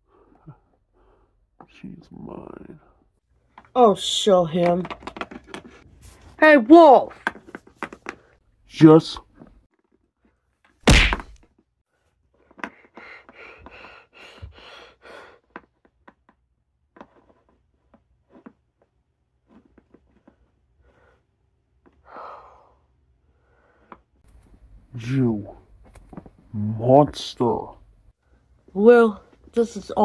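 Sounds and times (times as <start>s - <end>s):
toy figurine thunk: 10.8s - 11.4s.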